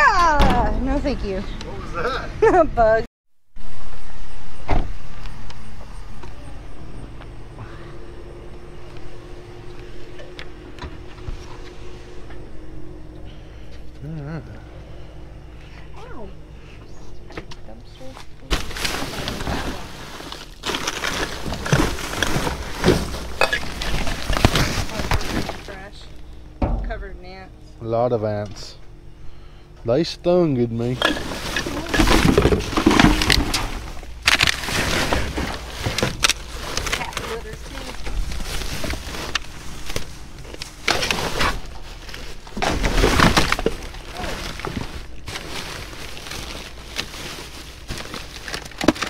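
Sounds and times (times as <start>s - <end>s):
plastic bags rustling: 18.0s - 26.0s, 30.8s - 49.0s.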